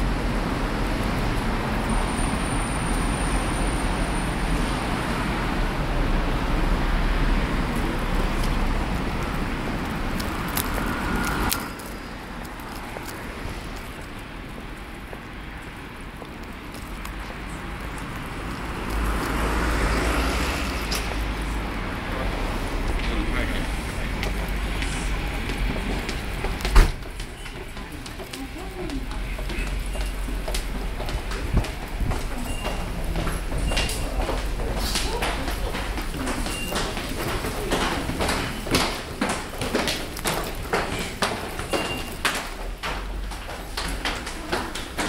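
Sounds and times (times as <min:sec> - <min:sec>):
road traffic: 0:00.0 - 0:45.0
wind rumbling on microphone: 0:30.3 - 0:34.6.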